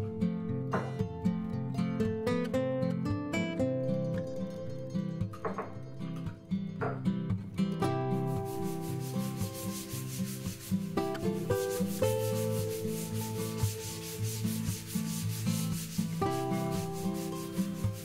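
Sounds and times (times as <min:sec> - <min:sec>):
sponge rubbing on wood: 0:08.2 - 0:18.0.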